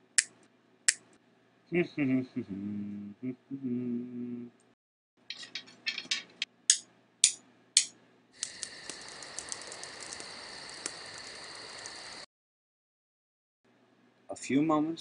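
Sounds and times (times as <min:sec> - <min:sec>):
campfire crackling and hissing: 0:08.4 - 0:12.3.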